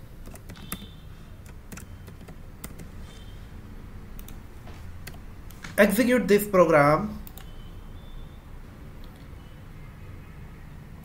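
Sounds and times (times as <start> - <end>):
keyboard keystrokes clicking: 0.2 - 3.2, 4.2 - 4.4, 5.0 - 5.8, 7.2 - 7.5.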